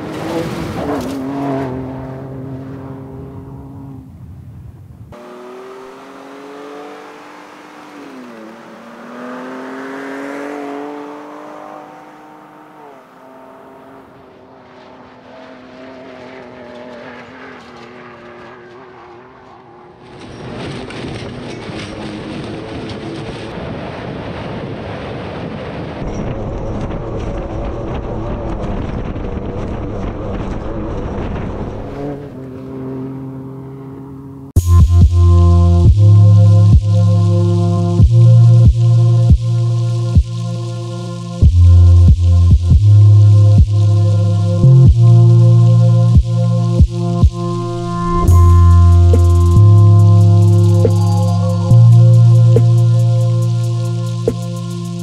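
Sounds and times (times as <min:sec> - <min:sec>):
tyres churning dirt and gravel: 0:00.0 - 0:03.8, 0:13.1 - 0:34.5
truck engine revving: 0:00.0 - 0:04.2, 0:05.1 - 0:23.5, 0:26.0 - 0:55.0.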